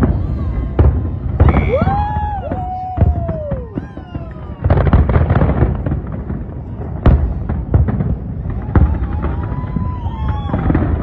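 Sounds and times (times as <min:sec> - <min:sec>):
firework whistles: 0:00.0 - 0:06.0, 0:08.5 - 0:11.0
fireworks bangs and crackles: 0:00.0 - 0:11.0.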